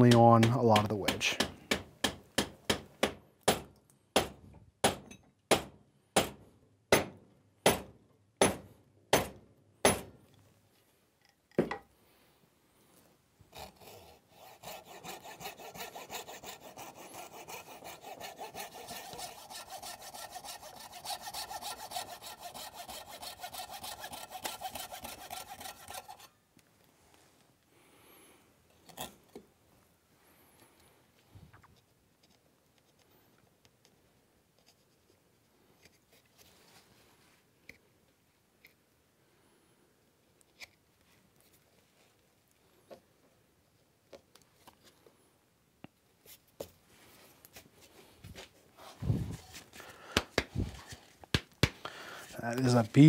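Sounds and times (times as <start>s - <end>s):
wooden wedge strikes: 0.0s - 10.2s, 13.6s - 26.3s, 50.1s - 51.9s
hand saw cutting wood: 13.5s - 26.4s.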